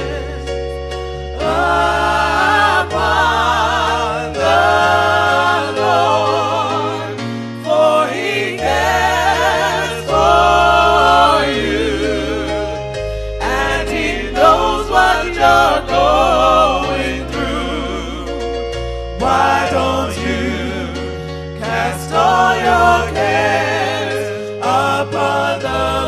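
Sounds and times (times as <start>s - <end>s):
voices singing gospel: 0.0s - 26.0s
low bass notes: 8.7s - 24.0s.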